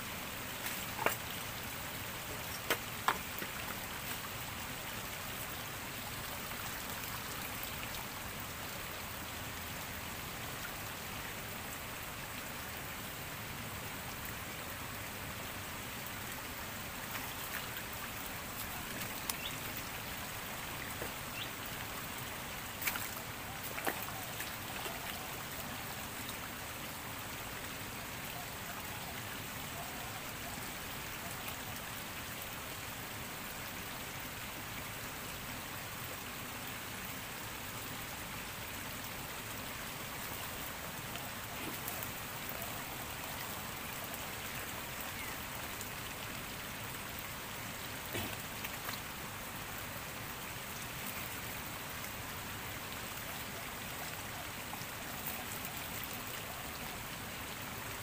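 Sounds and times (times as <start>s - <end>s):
shallow stream splashing: 17.0s - 26.0s.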